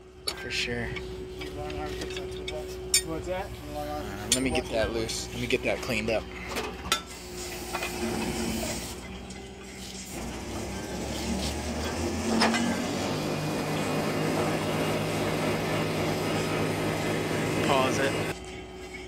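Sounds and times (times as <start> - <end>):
hoist running with hum: 4.1 - 19.0.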